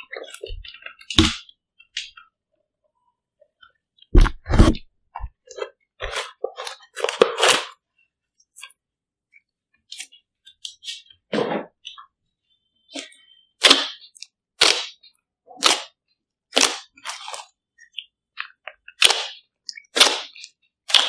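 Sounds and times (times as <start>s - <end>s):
slime squelching: 0.0s - 2.4s, 4.0s - 8.8s, 12.9s - 21.0s.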